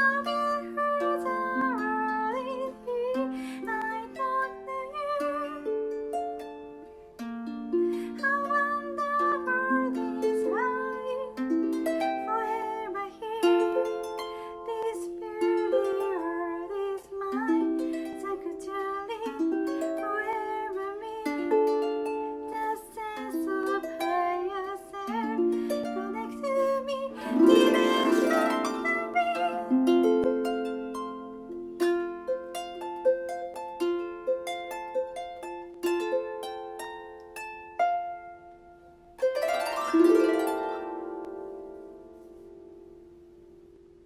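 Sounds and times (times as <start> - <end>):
woman singing: 0.0 - 6.1, 8.0 - 31.0.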